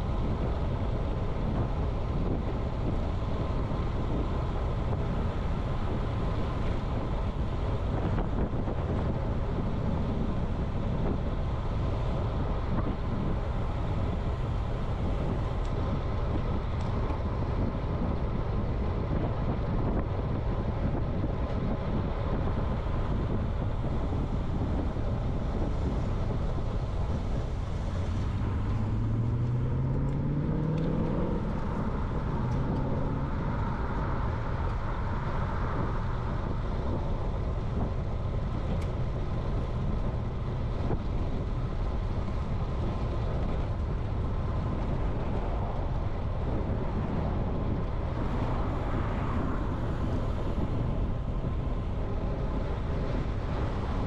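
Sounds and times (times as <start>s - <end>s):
bicycle tyre and road noise: 0.0s - 54.0s
wind on microphone: 0.0s - 54.0s
vehicle engine rising in pitch: 27.7s - 36.1s.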